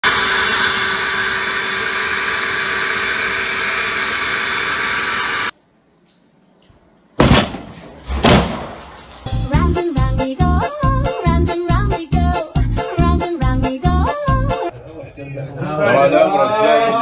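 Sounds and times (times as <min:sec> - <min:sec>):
leaf blower running: 0:00.0 - 0:05.5.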